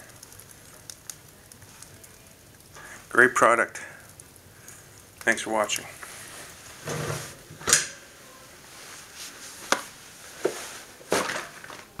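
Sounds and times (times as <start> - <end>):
stove door scrape: 6.0 - 8.1
stove door clanking shut: 6.8 - 8.0.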